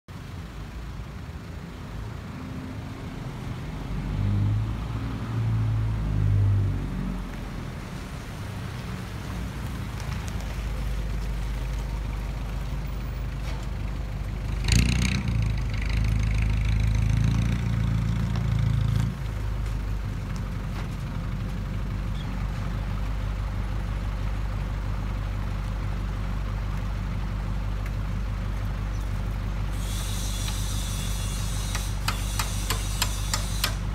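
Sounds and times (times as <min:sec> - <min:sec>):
truck diesel engine: 0:00.1 - 0:33.9
sharp hiss: 0:29.7 - 0:33.9.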